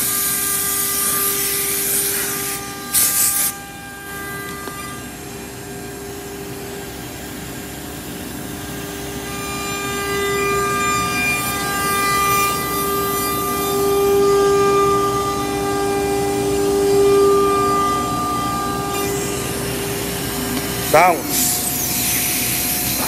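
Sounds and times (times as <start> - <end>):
router spindle whine: 0.0 - 23.0
router bit cutting board: 9.1 - 23.0.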